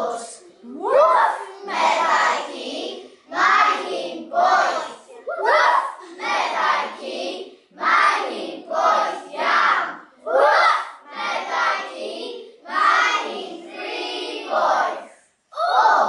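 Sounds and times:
young children chanting in unison: 0.0s - 16.0s.

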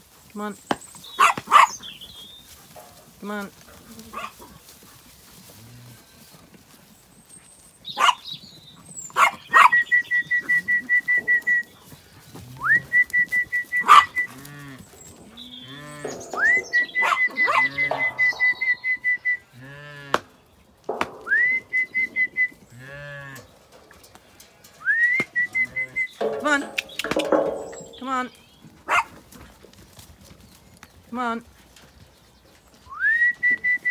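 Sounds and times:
sharp knocks: 20.9s - 21.6s, 26.2s - 28.0s.

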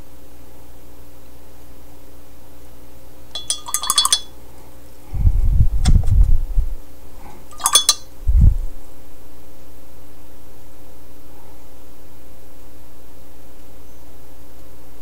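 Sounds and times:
small hard objects clinking: 3.4s - 4.3s, 7.5s - 8.0s.

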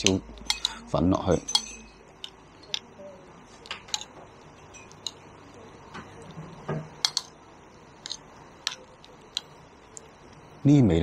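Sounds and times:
metal spoon scraping ceramic plate: 0.0s - 0.8s.

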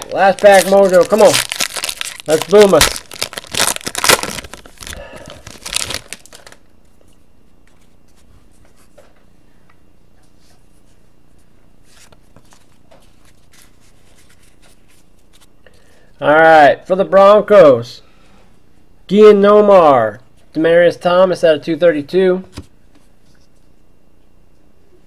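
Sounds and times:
cards rustling: 0.0s - 6.6s, 11.8s - 15.5s
foil wrapper tearing and crinkling: 0.0s - 6.6s.

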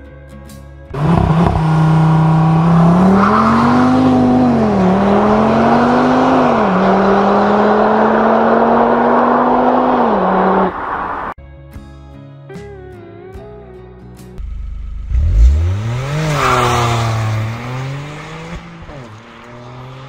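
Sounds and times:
car engine accelerating with upshifts: 0.9s - 11.4s, 14.4s - 20.0s.

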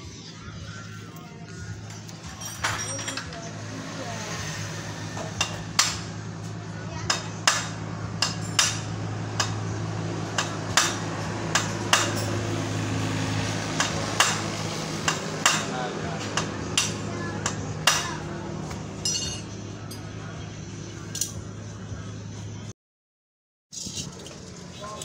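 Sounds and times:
metal parts rattling: 2.2s - 3.5s, 19.0s - 19.4s, 23.7s - 25.0s.

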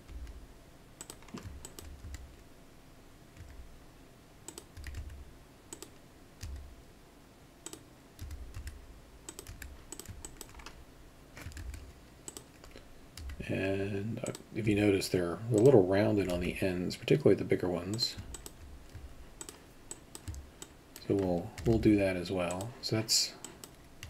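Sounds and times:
keyboard keys clicking: 1.0s - 2.4s, 3.4s - 3.6s, 4.5s - 6.7s, 7.6s - 10.8s, 11.4s - 13.4s, 17.9s - 22.7s
mouse buttons clicking: 18.2s - 21.8s.

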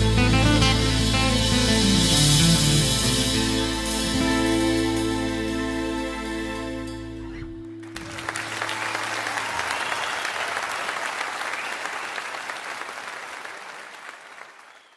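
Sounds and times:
audience applauding: 7.8s - 14.9s.

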